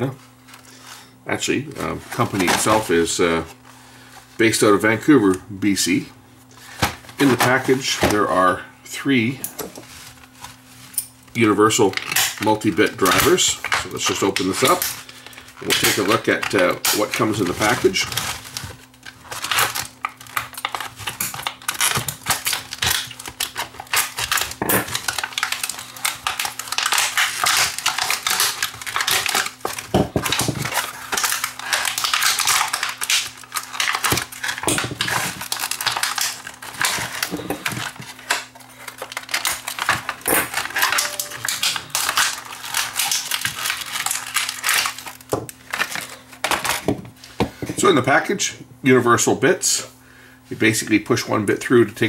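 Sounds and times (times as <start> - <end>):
stiff plastic crackling: 0.0 - 8.6, 9.8 - 48.2
scissors snipping plastic: 15.6 - 46.8.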